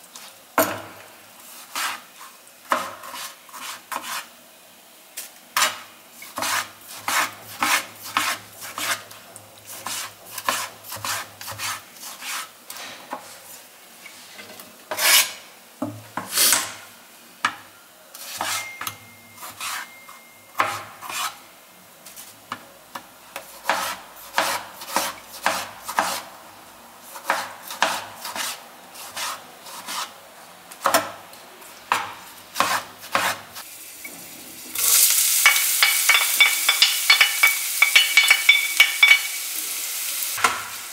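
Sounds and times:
onion sizzling in hot oil: 0.0 - 14.2, 31.7 - 40.9
knife chopping on cutting board: 1.7 - 2.0, 2.7 - 4.2, 6.4 - 9.0, 9.8 - 12.5, 20.6 - 21.4, 23.4 - 26.3, 27.2 - 30.1, 30.8 - 31.2, 31.9 - 33.5.

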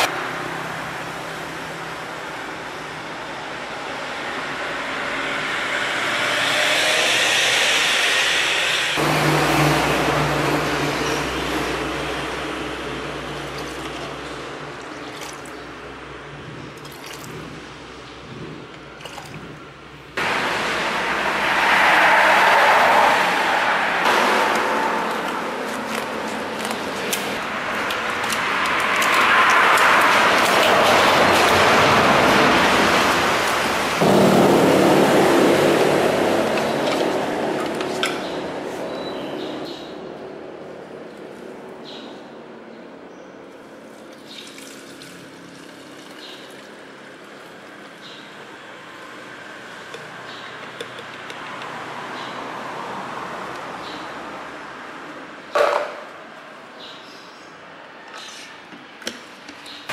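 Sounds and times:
vehicle going by: 0.0 - 41.1
liquid trickling into a bottle: 44.0 - 46.8.

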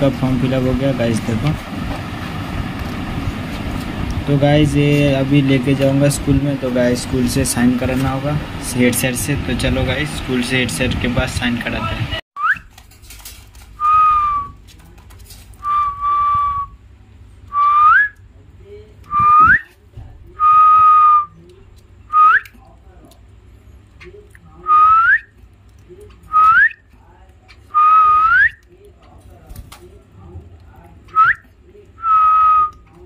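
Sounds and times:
short upward-hooking whistles: 12.4 - 12.7, 13.8 - 14.6, 15.6 - 16.8, 17.5 - 18.2, 19.1 - 19.7, 24.7 - 25.3, 27.7 - 28.6, 31.2 - 31.4, 32.0 - 32.8.

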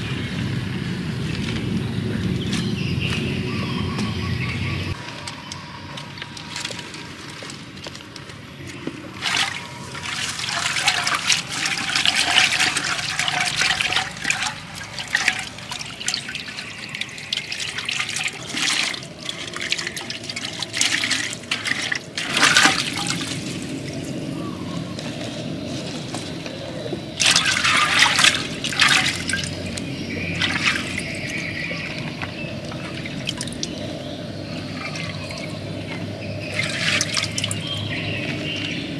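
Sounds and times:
water splashing in a pot: 9.2 - 23.9, 27.2 - 33.9, 34.5 - 38.8.

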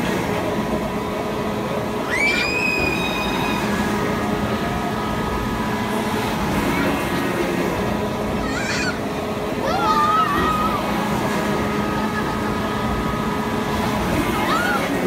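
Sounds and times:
amusement ride rumble: 0.0 - 15.0.

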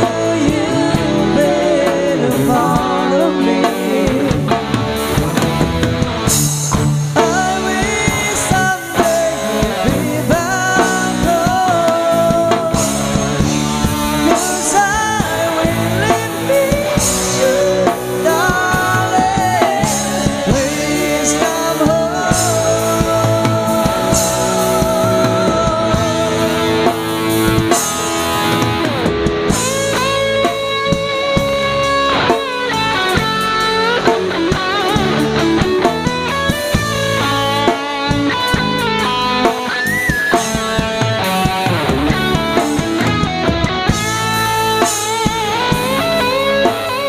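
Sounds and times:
man and woman singing: 0.0 - 4.9, 7.2 - 27.1
lead electric guitar line: 0.0 - 47.0
live rock band playing ballad: 0.0 - 47.0.

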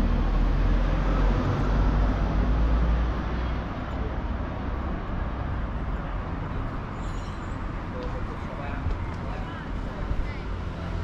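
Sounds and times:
city street noise: 0.0 - 11.0.

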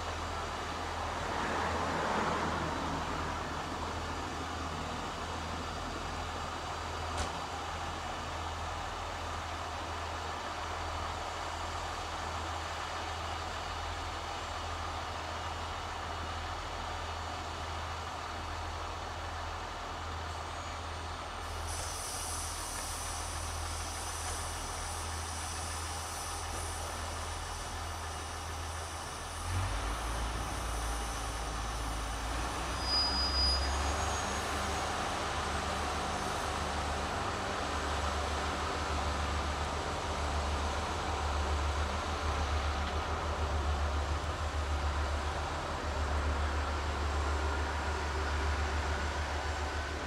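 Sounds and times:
diesel engine running: 0.0 - 50.0
high hiss: 21.4 - 40.9.

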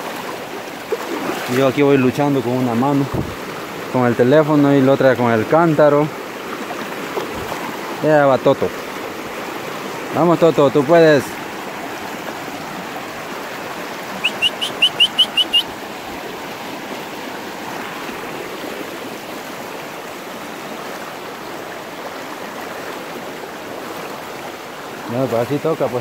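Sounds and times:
river rushing over stones: 0.0 - 26.0
short high rising chirps: 14.2 - 15.7.

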